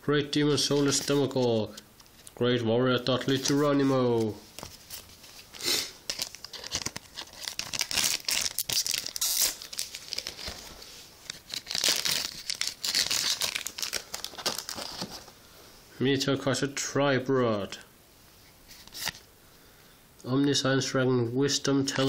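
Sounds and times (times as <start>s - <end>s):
foil pack crinkling and tearing: 4.9s - 15.3s.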